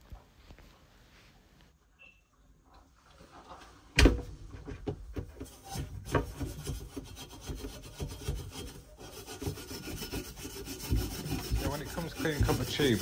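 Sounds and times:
abrasive pad scrubbing pipe: 5.4 - 13.0.

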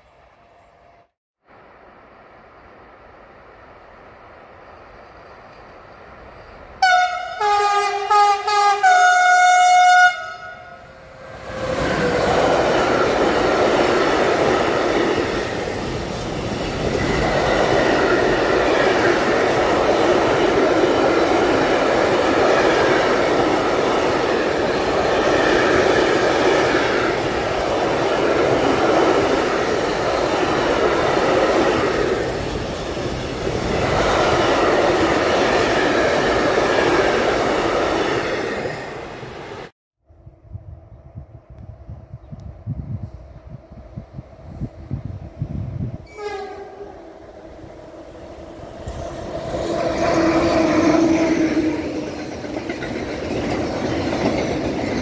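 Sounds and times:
locomotive horn blasts: 6.8 - 11.6, 46.1 - 47.2
freight train wheels clattering: 48.8 - 55.0.

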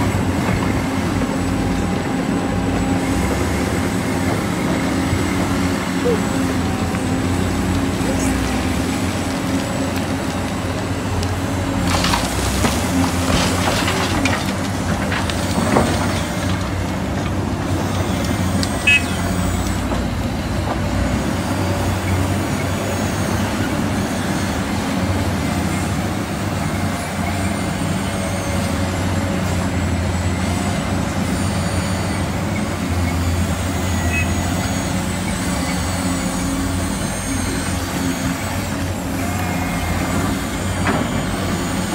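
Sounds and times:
model excavator mechanical drone: 14.1 - 41.9.

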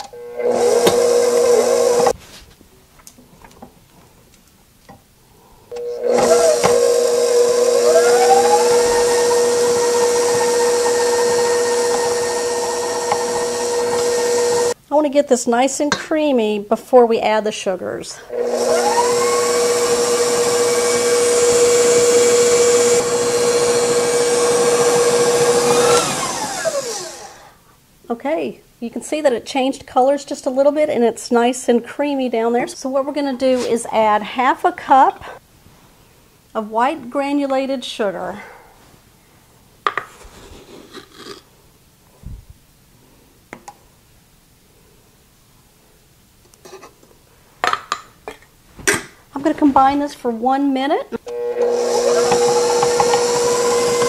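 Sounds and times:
stand mixer motor whining: 0.0 - 2.2, 5.7 - 14.8, 18.3 - 27.5, 51.2 - 54.0.

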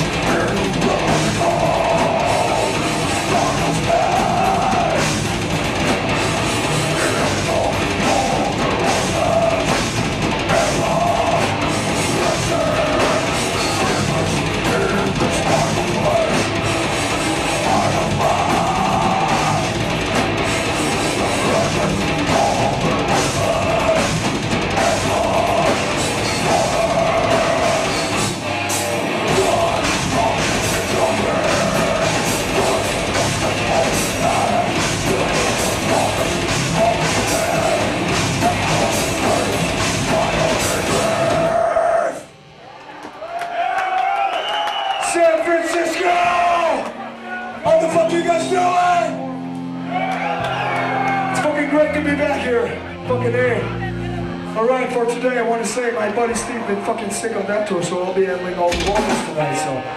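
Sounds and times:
drum kit: 0.0 - 42.3, 58.6 - 59.6
distorted electric guitar riffs: 0.0 - 42.9, 45.1 - 59.9.

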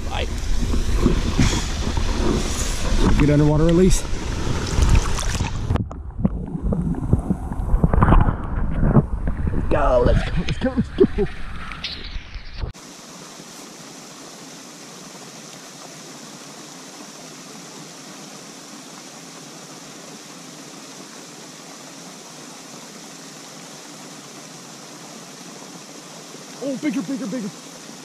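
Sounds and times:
fountain water spraying: 0.0 - 5.8, 12.8 - 28.0.

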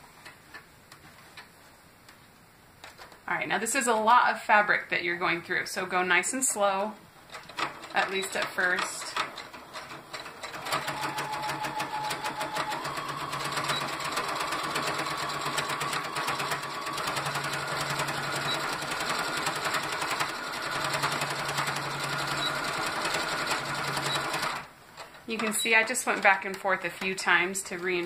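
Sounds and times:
sewing machine stitching: 7.3 - 28.0.

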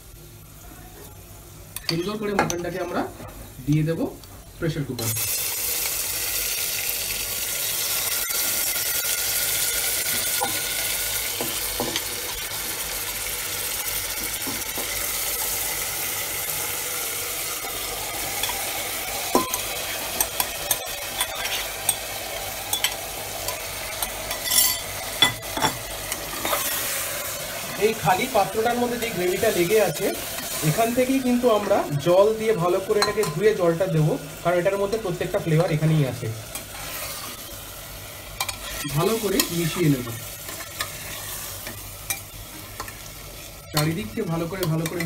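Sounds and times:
meat sizzling in hot oil: 1.7 - 45.0
steel spoon scraping steel bowl: 24.3 - 24.9.

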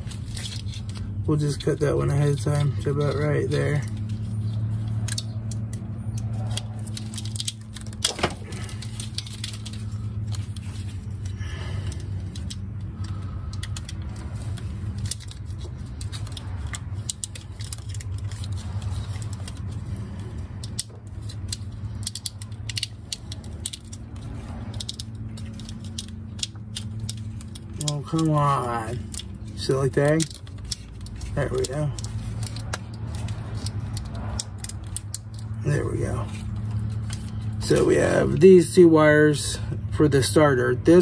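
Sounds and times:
steady low hum: 0.0 - 41.0
plastic wire loom clicking crackling: 12.3 - 35.5.

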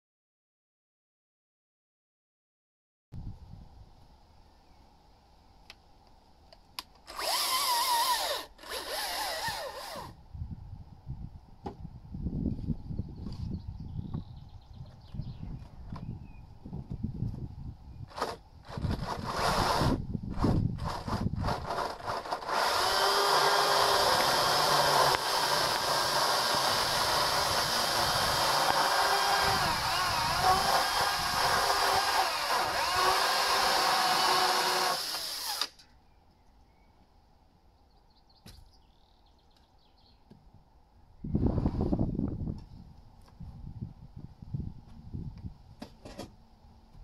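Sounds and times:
chainsaw cutting wood: 7.1 - 10.2, 18.1 - 35.8.

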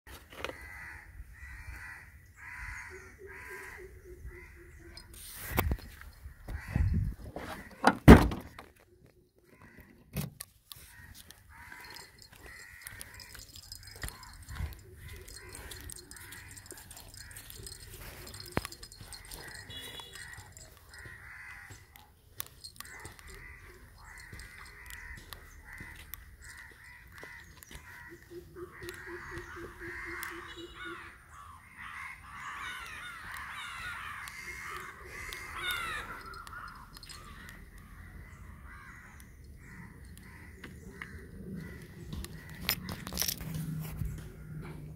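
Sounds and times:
crows cawing: 0.1 - 8.8, 9.4 - 10.1, 10.7 - 43.5
birds calling: 0.1 - 44.9
faint outdoor background: 0.1 - 44.9
car boot lid slamming: 7.8 - 8.5
low rapidly repeated hoot: 13.0 - 21.0.

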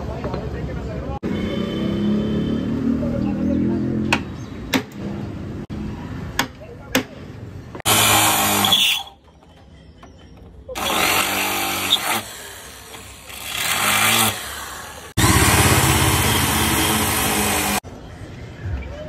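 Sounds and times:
angle grinder cutting plastic: 7.8 - 9.2, 10.8 - 17.8.

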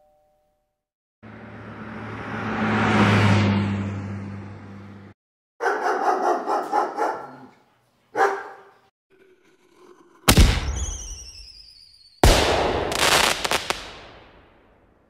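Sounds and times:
dog barking: 5.6 - 8.9
loud firework bangs: 10.3 - 11.6, 12.2 - 14.7
falling whistling tones: 10.6 - 12.2
firework crackle: 12.2 - 14.4.

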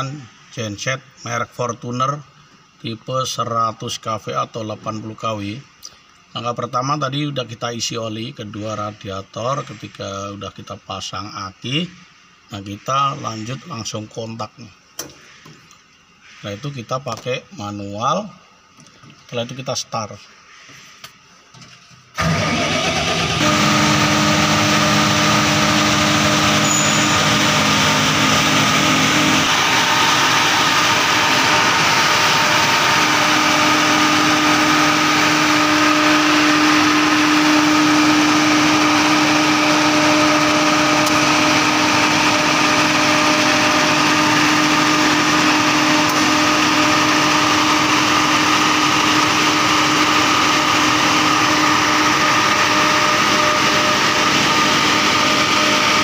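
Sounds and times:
diesel generator starting and running: 21.9 - 56.0.

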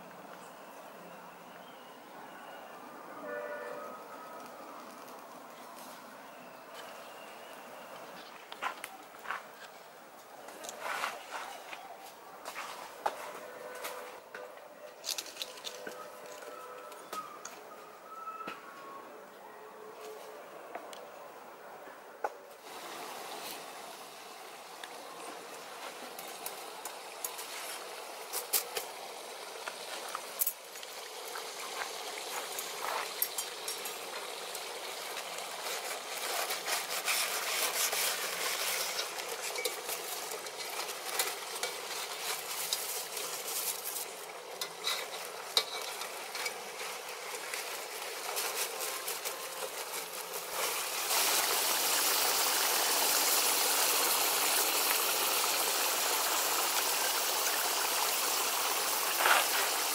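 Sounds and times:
meat sizzling in oil: 26.2 - 48.6, 49.6 - 59.9
metal skewer scraping pan: 44.6 - 46.9.

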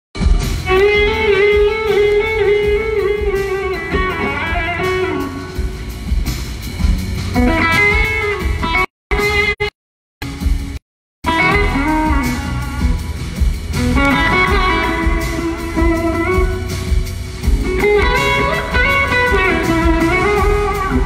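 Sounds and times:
band playing live: 0.2 - 21.0
electric slide guitar solo: 17.7 - 21.0.

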